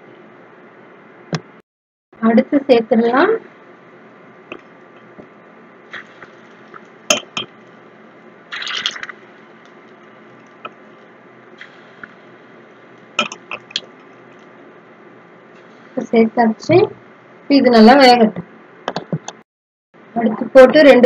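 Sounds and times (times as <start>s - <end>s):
hot oil sizzling: 5.9s - 14.5s.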